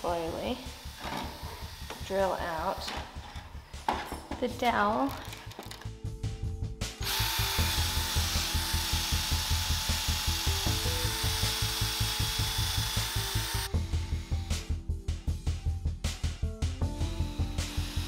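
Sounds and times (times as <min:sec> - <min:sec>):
background music with a beat: 0:05.3 - 0:08.1, 0:09.9 - 0:18.0
power drill boring into wood: 0:07.0 - 0:13.7, 0:17.4 - 0:18.0.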